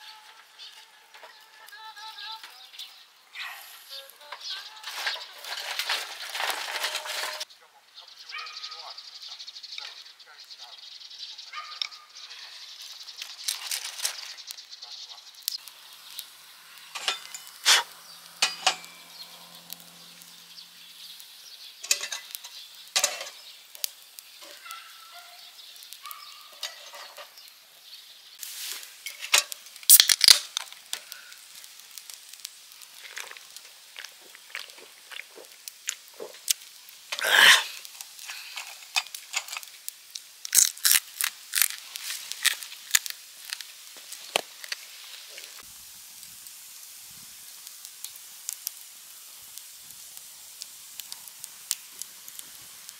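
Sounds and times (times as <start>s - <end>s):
campfire crackling and popping: 0.0s - 52.9s
can snapped open with hiss: 13.0s - 14.7s, 15.4s - 20.4s, 21.0s - 24.7s, 28.4s - 52.9s
knife shaving kindling: 17.0s - 19.7s.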